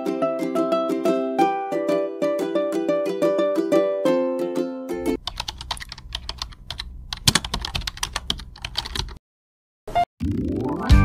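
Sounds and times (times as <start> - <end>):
keyboard typing: 5.2 - 9.2.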